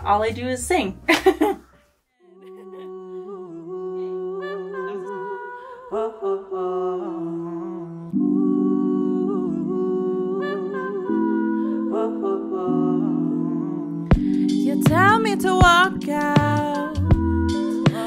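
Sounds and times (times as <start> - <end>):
woman humming: 2.3 - 5.3.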